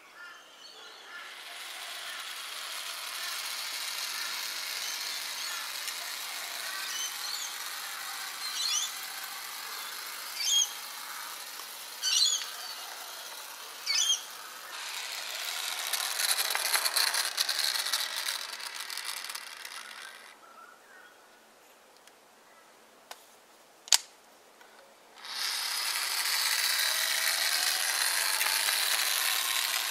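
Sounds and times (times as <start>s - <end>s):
model tram motor whirring: 1.0s - 20.4s, 25.2s - 29.9s
short high squeals: 8.4s - 9.0s, 9.7s - 10.9s, 12.0s - 12.8s, 13.8s - 16.8s.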